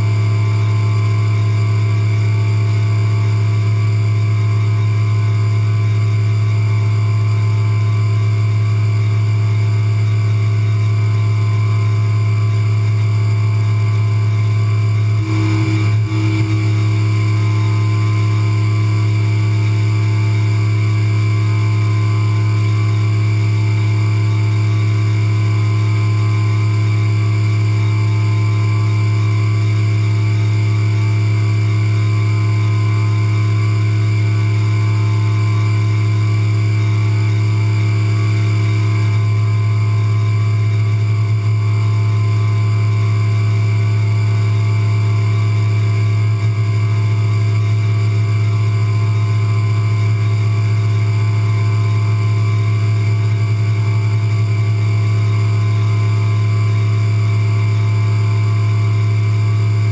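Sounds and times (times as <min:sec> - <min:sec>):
milling machine spindle drone: 0:00.0 - 0:59.9
high machine tones: 0:10.3 - 0:42.1.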